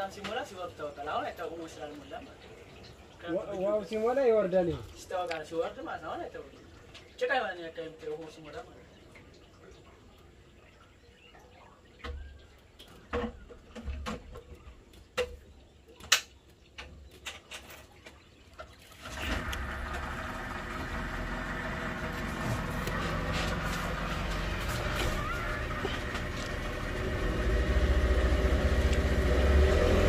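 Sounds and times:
boat engine running: 19.0 - 30.0.

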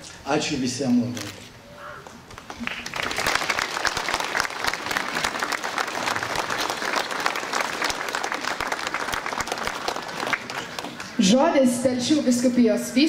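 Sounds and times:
crowd applauding: 2.0 - 11.2.

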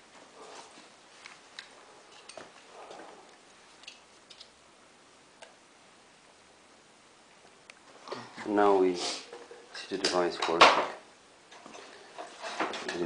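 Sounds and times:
soft rustle: 0.0 - 4.3.

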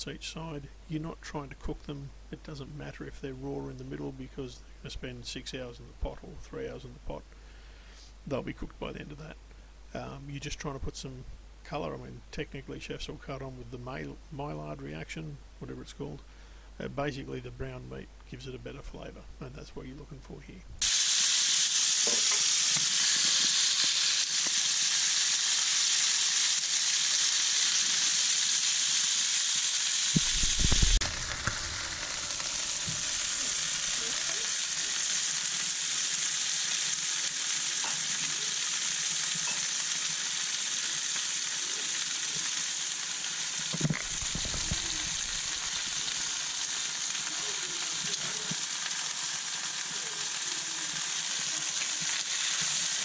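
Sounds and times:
steak sizzling in a pan: 20.8 - 53.0.

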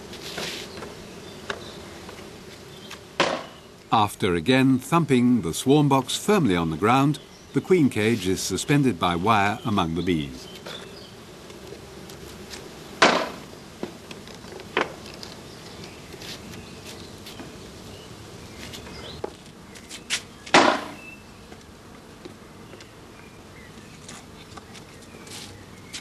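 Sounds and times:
bees buzzing: 0.0 - 26.0
sharp knocks: 3.2 - 3.6, 13.0 - 13.4, 20.5 - 21.0.

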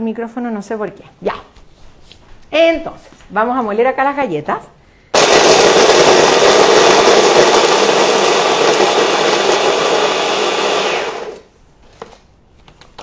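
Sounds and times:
blender motor grinding: 5.2 - 11.5.

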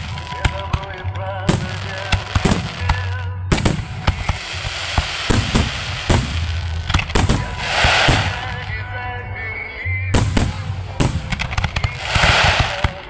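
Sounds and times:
fireworks bursting with sharp bangs: 0.0 - 8.9, 10.1 - 13.0
fireworks hissing and crackling: 1.6 - 8.8, 10.2 - 13.0.

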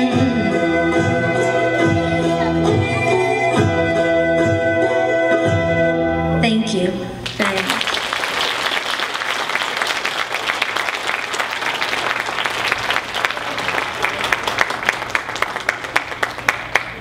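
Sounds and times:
audience applauding: 7.2 - 17.0.

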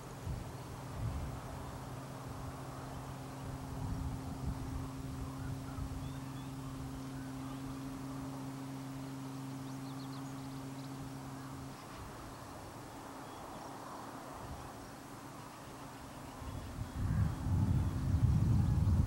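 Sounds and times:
soft background hiss: 0.0 - 19.0
steady low hum: 0.0 - 19.0
faint high bird chirps: 4.8 - 12.6.

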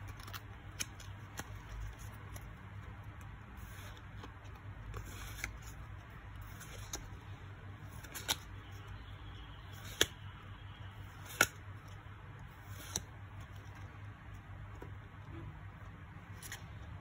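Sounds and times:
cards flipped by hand: 0.0 - 5.8, 6.4 - 7.1, 7.9 - 8.5, 9.8 - 10.2, 11.1 - 12.0, 12.6 - 13.8, 16.3 - 16.8
low steady hum: 0.0 - 17.0
card snapping against stack: 9.8 - 10.2, 11.2 - 11.6, 12.7 - 13.1.

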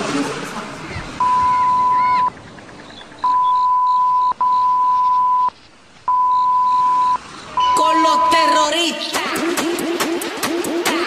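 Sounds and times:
steady beep tone: 1.2 - 2.3, 3.2 - 8.8.

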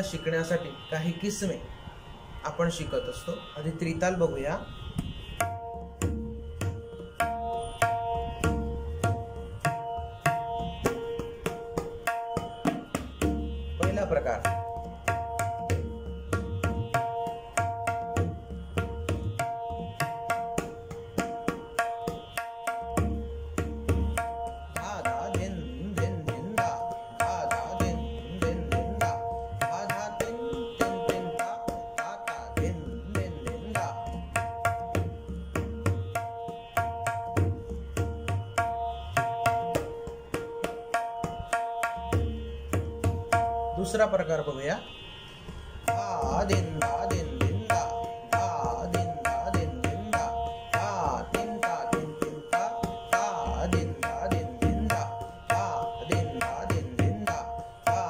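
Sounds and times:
steady drone tone: 0.0 - 58.0
tabla drumming: 5.3 - 44.5, 45.5 - 58.0.

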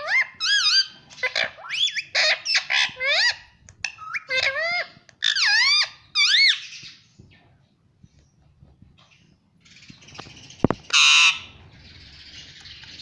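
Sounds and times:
parrot chattering: 0.0 - 6.6.

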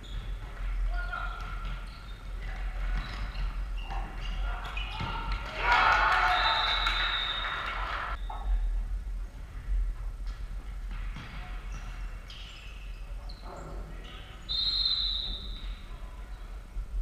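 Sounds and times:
shoe squeaks: 0.0 - 0.5, 1.2 - 5.3, 11.6 - 16.5.

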